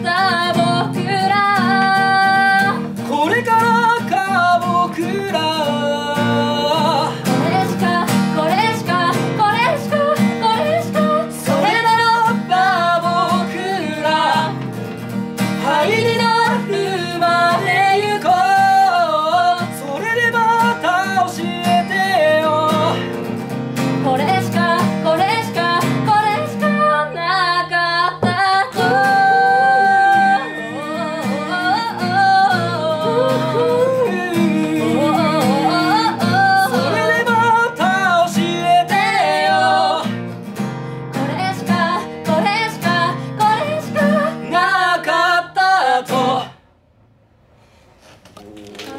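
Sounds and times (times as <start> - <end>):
man and woman singing: 0.0 - 14.8, 15.4 - 23.3, 24.0 - 40.3, 41.1 - 46.6
acoustic guitar: 0.0 - 48.9.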